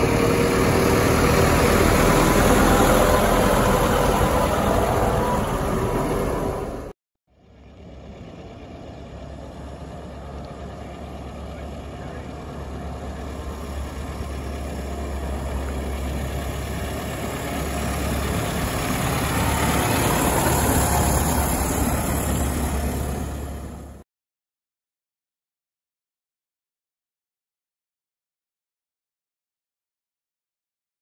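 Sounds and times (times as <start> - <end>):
bus engine running: 0.0 - 24.0.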